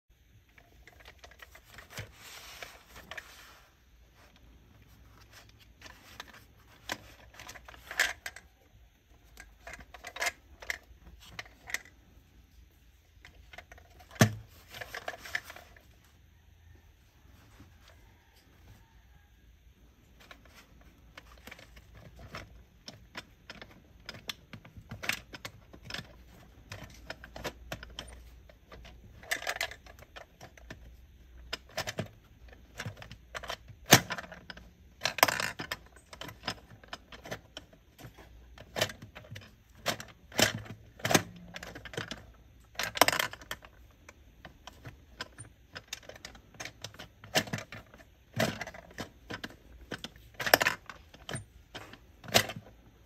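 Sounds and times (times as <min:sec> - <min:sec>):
toy claw machine clicking: 0:31.4 - 0:43.9.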